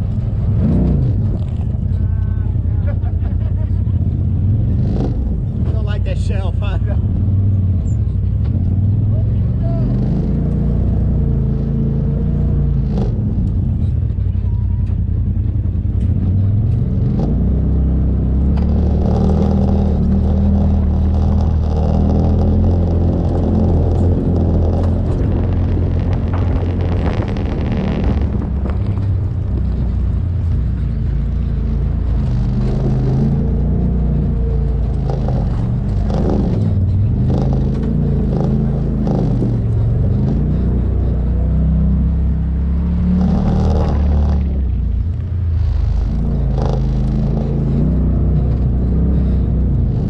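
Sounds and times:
off-road vehicle engine running: 0.0s - 50.0s
knocks and rattles: 18.4s - 50.0s.

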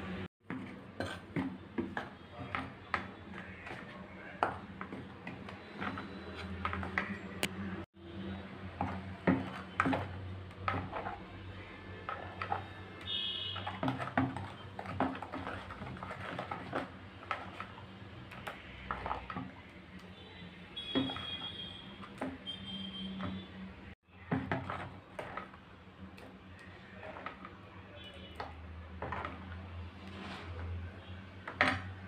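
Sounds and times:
spoon scraping plastic bowl: 0.4s - 7.2s, 8.6s - 19.7s, 24.3s - 25.6s, 26.2s - 27.6s, 28.4s - 30.8s.

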